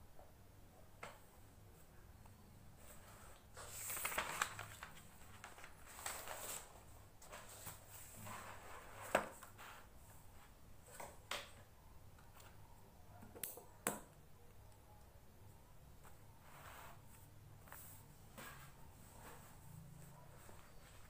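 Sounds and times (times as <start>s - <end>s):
paper rustling: 2.9s - 9.9s.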